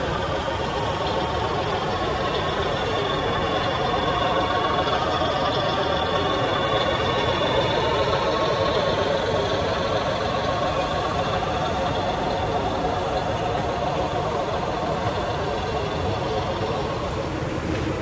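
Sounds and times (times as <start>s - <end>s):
small motors droning and whining: 0.0s - 18.0s.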